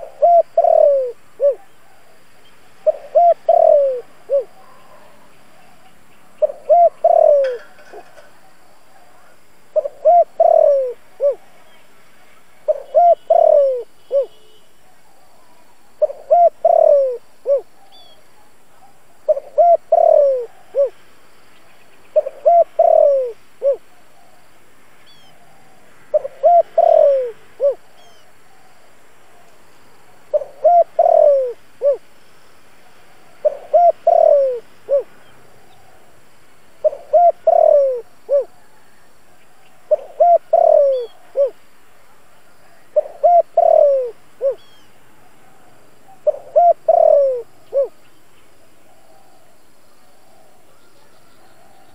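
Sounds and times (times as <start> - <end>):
dove cooing: 0.0 - 5.8, 6.4 - 11.6, 12.7 - 14.4, 15.0 - 21.0, 22.2 - 24.4, 25.1 - 28.8, 30.3 - 32.0, 33.4 - 36.0, 36.8 - 41.7, 42.6 - 48.0
faint bird chirps: 0.0 - 32.0, 36.8 - 51.9.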